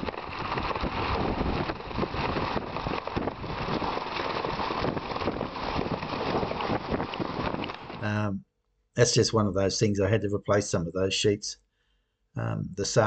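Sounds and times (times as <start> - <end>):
metal roof sheeting rattling: 0.0 - 8.0
wind buffeting microphone: 0.0 - 8.3.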